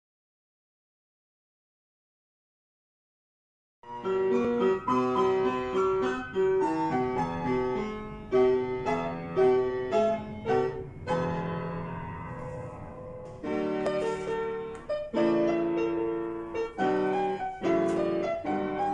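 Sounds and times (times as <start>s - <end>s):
piano-like keyboard melody: 3.8s - 18.9s.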